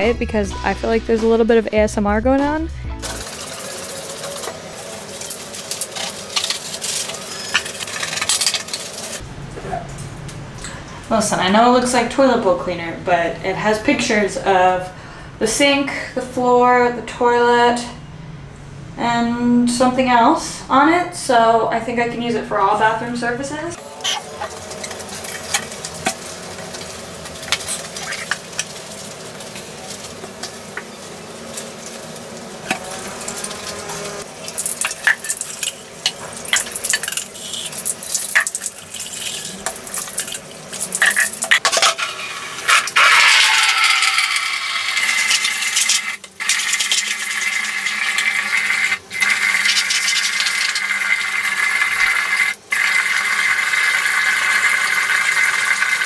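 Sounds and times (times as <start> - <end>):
running water hiss: 23.8 - 56.0.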